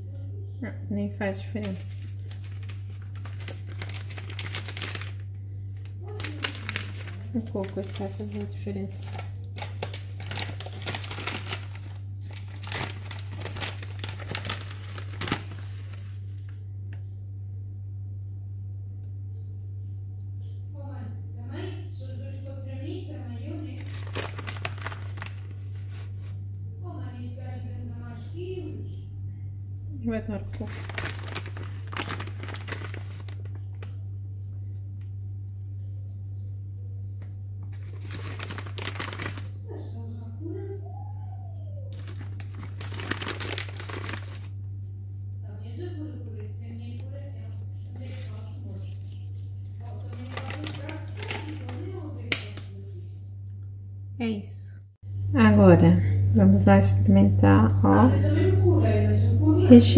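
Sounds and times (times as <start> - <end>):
steady low hum: 0.0 - 59.9
plastic bag crinkling: 1.4 - 16.6, 23.7 - 26.4, 30.5 - 34.0, 37.7 - 39.7, 41.9 - 44.6, 47.0 - 53.0.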